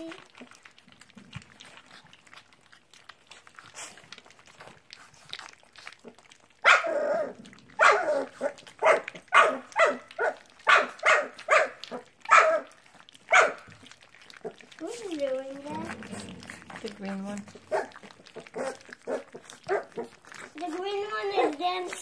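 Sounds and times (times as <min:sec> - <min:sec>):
puppy yapping: 0:05.8 - 0:22.0.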